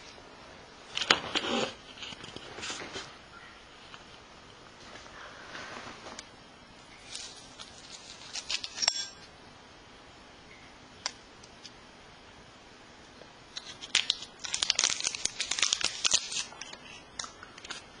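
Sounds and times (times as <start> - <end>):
paper tearing: 1.0 - 2.7, 13.7 - 16.6
paper packets crinkling: 7.0 - 8.8, 13.6 - 17.0.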